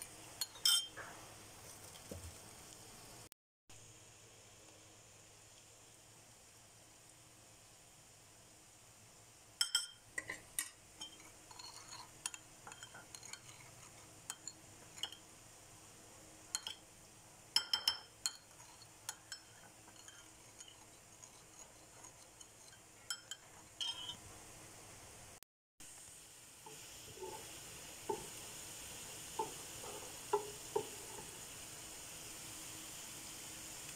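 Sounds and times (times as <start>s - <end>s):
metal spoon clinking in ceramic bowl: 0.4s - 1.0s, 9.6s - 15.2s, 16.5s - 16.8s, 17.6s - 24.2s.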